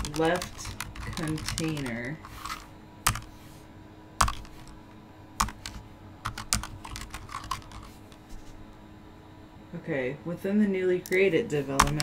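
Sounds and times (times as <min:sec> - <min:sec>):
keyboard typing: 0:00.0 - 0:03.3, 0:04.2 - 0:04.8, 0:05.4 - 0:08.0, 0:11.8 - 0:12.0.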